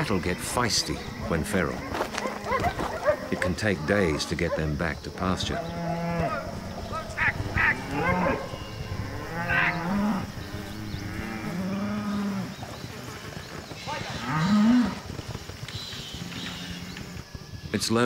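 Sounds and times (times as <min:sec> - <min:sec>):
cattle mooing: 0:05.5 - 0:12.5.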